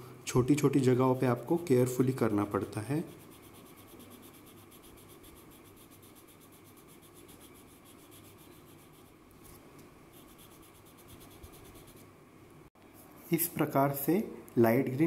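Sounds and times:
oil pastel rubbing on paper: 3.0s - 9.2s, 10.2s - 12.0s.

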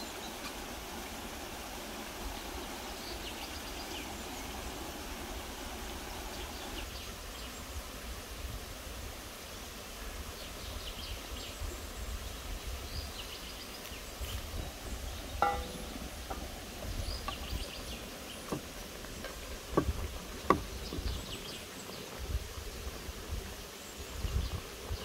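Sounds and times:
ceramic pot lid clink: 15.4s - 15.9s
wooden spatula knocking clay pot: 15.4s - 16.6s.

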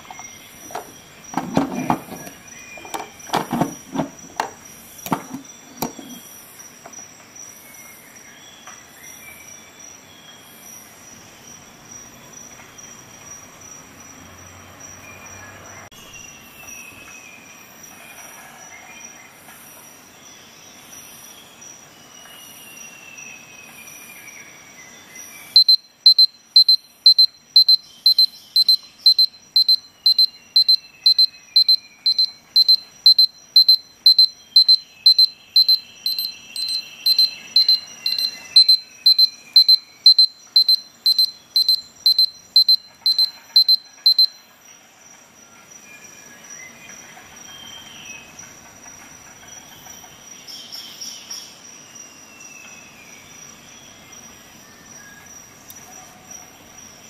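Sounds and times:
digital alarm beeping: 0.0s - 6.2s, 25.6s - 44.4s.

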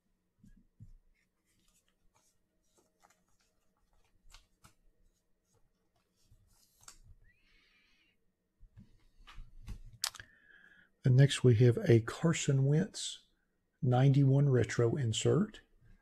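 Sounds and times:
plastic card sleeve rustling: 1.1s - 7.2s.

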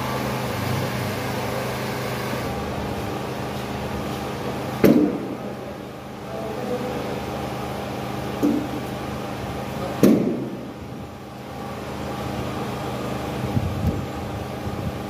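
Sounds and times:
steady machine hum: 0.0s - 15.0s.

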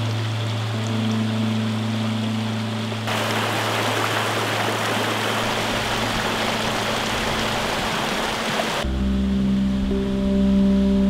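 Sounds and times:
river rushing over rocks: 1.5s - 8.8s.

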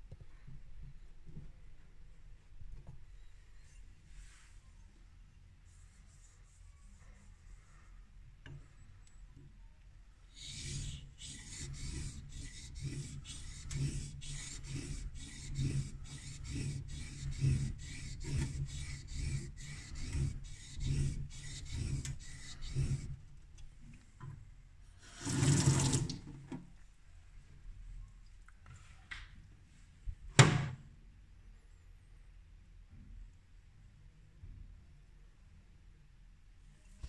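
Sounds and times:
blade scraping on wet whetstone: 10.4s - 23.2s.

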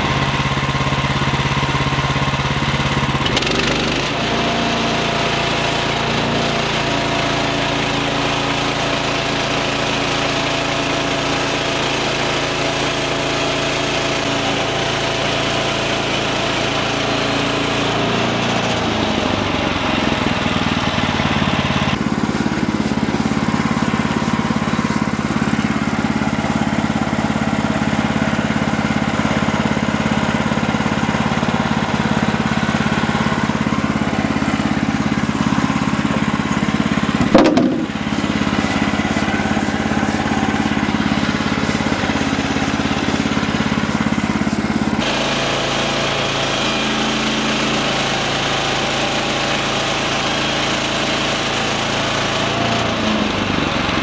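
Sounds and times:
sawmill engine running: 0.0s - 54.0s
band blade sawing wood: 34.0s - 48.4s.

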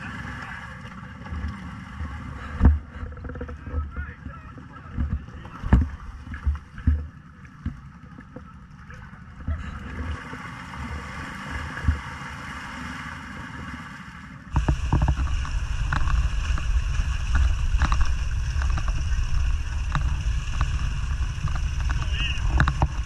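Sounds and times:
atv engine running: 14.5s - 23.0s
quad churning through mud: 14.5s - 23.0s
wind rumble on microphone: 14.5s - 23.0s.

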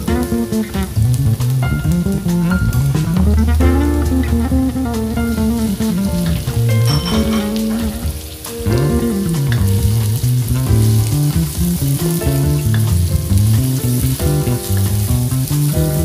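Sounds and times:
background music: 0.0s - 16.0s
onion sizzling in hot oil: 5.4s - 16.0s.

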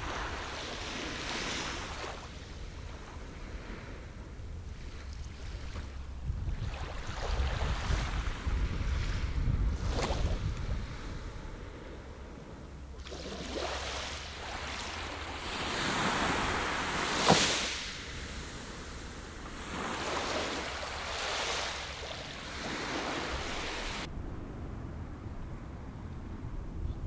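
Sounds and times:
small waves washing on sand: 0.0s - 12.0s, 12.9s - 24.1s
wind rumble on microphone: 0.0s - 27.0s
sharp water slap: 9.8s - 10.6s, 17.0s - 18.0s.

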